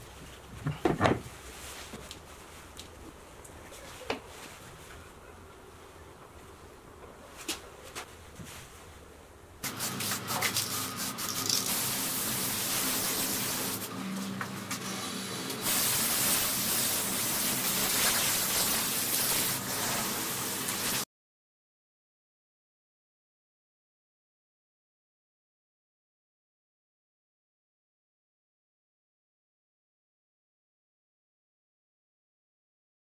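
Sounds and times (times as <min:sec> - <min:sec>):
aerosol spray can hissing: 0:09.6 - 0:13.9, 0:15.4 - 0:21.0.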